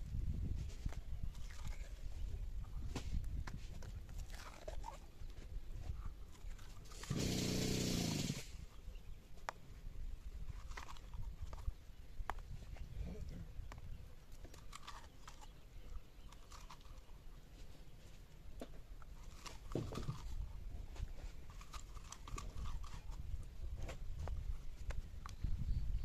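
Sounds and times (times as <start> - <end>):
fingers scraping seeds from squash: 2.9 - 7.2, 18.6 - 25.5.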